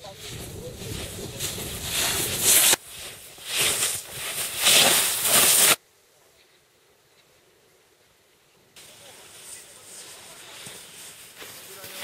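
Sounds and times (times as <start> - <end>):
snowboard scraping through slush: 0.0 - 5.8, 9.0 - 12.0.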